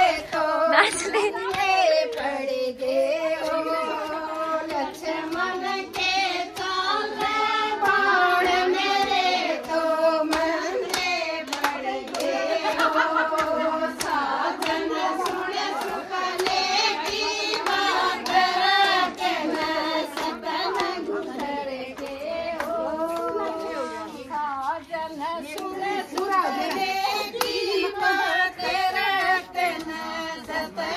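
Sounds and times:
women singing folk song: 0:00.0 - 0:30.9
sharp handclaps: 0:04.0 - 0:23.4.

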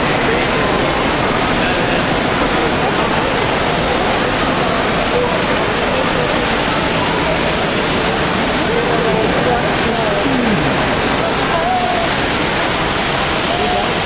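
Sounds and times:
faint murmur of voices: 0:00.0 - 0:14.0
falling water rushing: 0:00.0 - 0:14.0.

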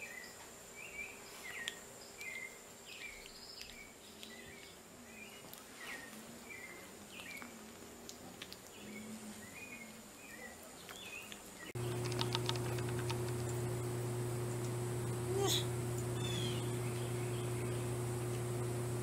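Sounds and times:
quick run of clicks: 0:11.8 - 0:13.6
loud low hum: 0:11.8 - 0:19.0
faint high chirps: 0:14.3 - 0:18.9.

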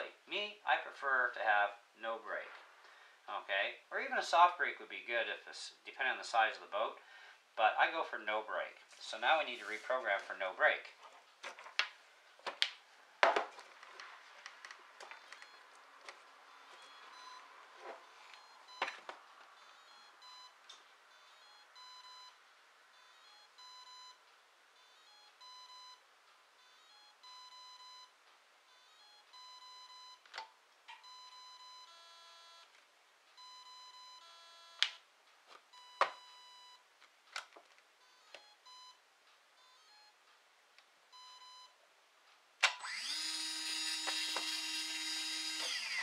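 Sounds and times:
electronic beeps through motor: 0:15.2 - 0:15.7, 0:16.5 - 0:19.0, 0:19.6 - 0:24.2, 0:24.8 - 0:26.0, 0:26.6 - 0:28.1, 0:28.7 - 0:30.2, 0:31.0 - 0:32.7, 0:33.4 - 0:34.8, 0:35.7 - 0:36.8, 0:42.7 - 0:46.0.

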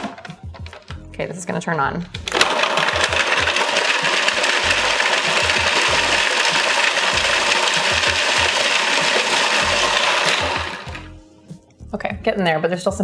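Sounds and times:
food processor running: 0:02.2 - 0:11.1
cheese pieces rattling in plastic bowl: 0:02.3 - 0:11.1.

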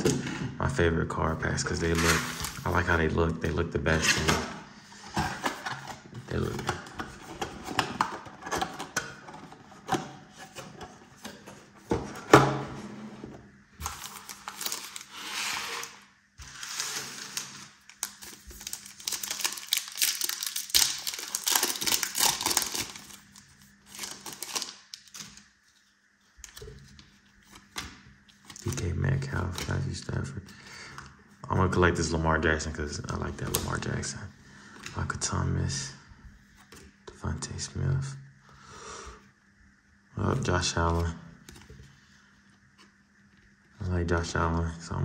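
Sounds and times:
foil wrappers crinkling and tearing: 0:13.8 - 0:15.8, 0:16.5 - 0:25.5.

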